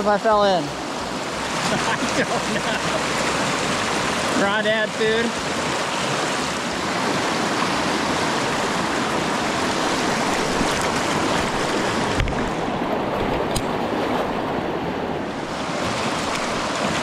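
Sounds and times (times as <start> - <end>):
fast-flowing river rushing: 0.0 - 17.0
small click: 13.5 - 13.7.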